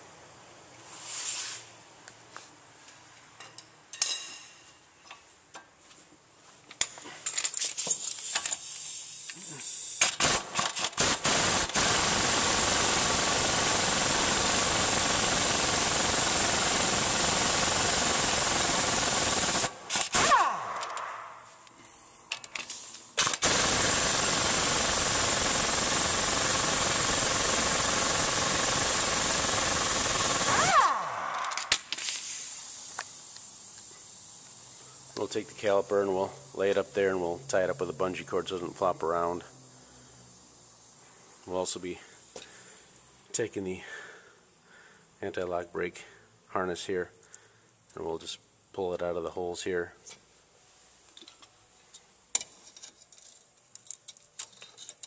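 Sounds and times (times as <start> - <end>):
pneumatic impact wrench hammering: 6.8 - 21.4, 22.3 - 33.1.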